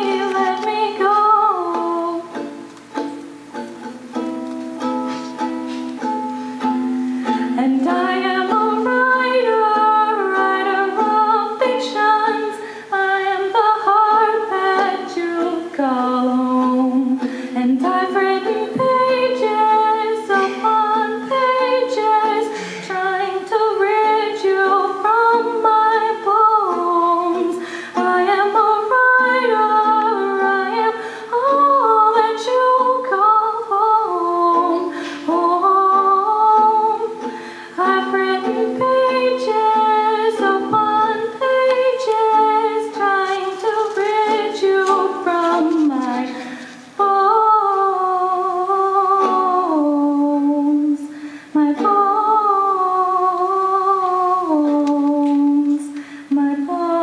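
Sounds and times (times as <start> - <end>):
woman singing a slow song: 0.0 - 2.7, 7.2 - 57.0.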